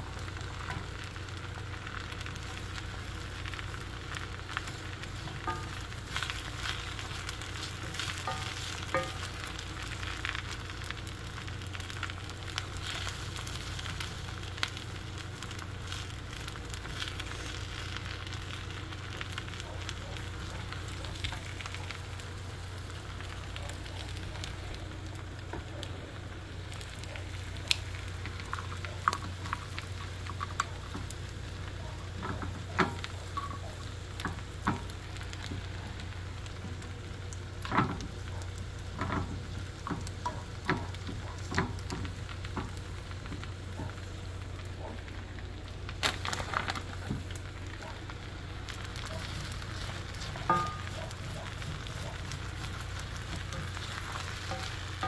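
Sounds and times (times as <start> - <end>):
shrimp sizzling in oil: 0.0 - 55.0
tongs tapping the pan: 4.5 - 10.4, 32.2 - 35.6, 50.2 - 55.0.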